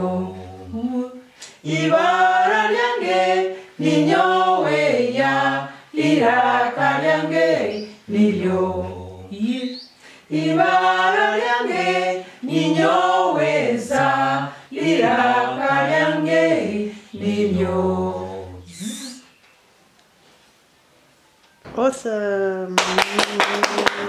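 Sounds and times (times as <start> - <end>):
people singing unaccompanied: 0.0 - 19.2.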